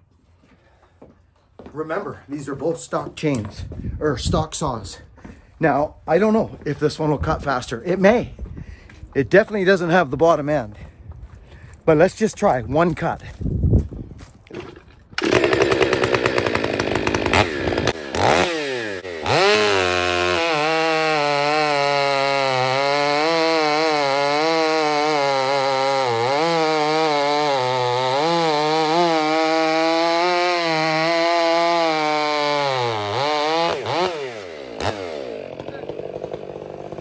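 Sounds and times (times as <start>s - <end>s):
chainsaw revving and cutting log: 14.6s - 37.0s.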